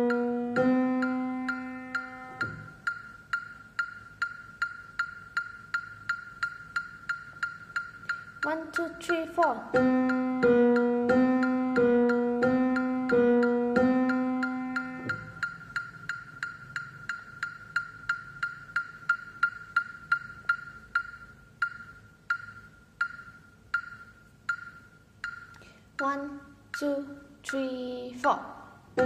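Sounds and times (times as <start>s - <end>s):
piano notes: 0.0s - 3.1s, 8.5s - 16.6s.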